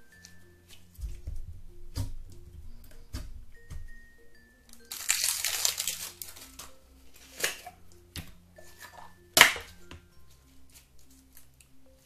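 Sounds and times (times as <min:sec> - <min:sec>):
slime crackling when squeezed: 0:04.9 - 0:06.6.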